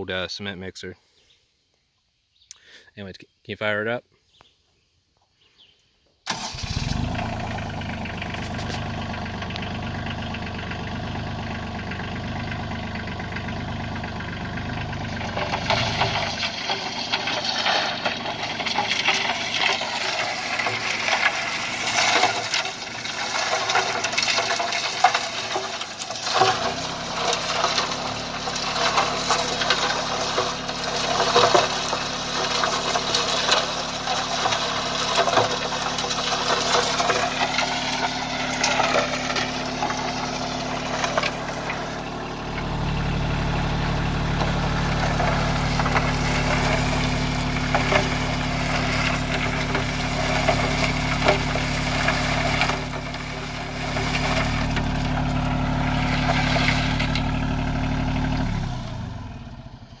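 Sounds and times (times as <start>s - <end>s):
tractor engine running: 6.3s - 60.0s
rocks clattering in turning drum: 8.0s - 9.2s, 15.0s - 58.4s.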